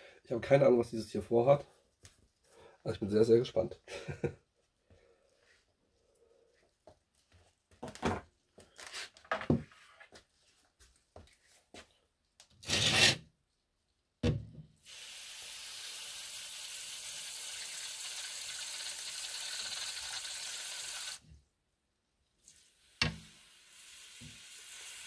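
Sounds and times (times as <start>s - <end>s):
water sprayer hissing: 14.8s - 21.2s, 22.5s - 25.0s.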